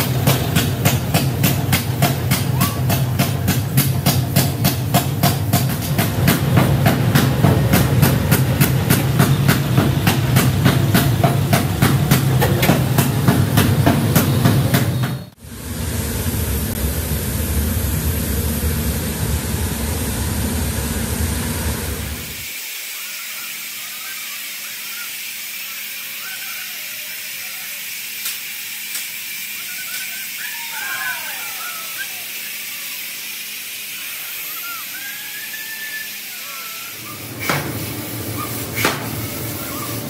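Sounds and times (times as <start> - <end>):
furnace burner roaring: 0.0 - 40.0
men calling out: 2.3 - 3.5, 23.3 - 37.5
steady hiss: 16.3 - 40.0.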